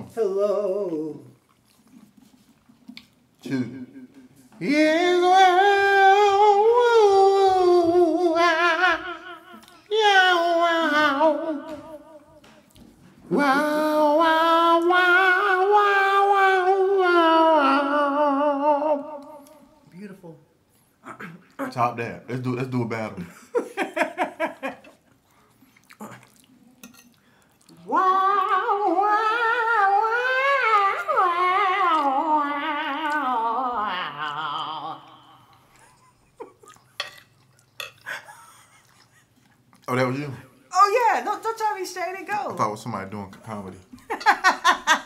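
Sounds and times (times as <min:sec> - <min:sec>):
man singing a long held note: 0:03.4 - 0:12.4, 0:13.3 - 0:19.6, 0:27.8 - 0:35.5.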